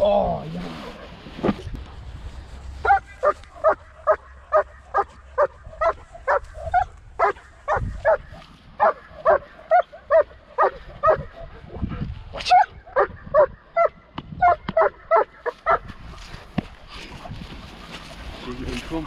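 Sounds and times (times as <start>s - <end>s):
dog barking: 2.8s - 11.6s, 12.5s - 15.9s.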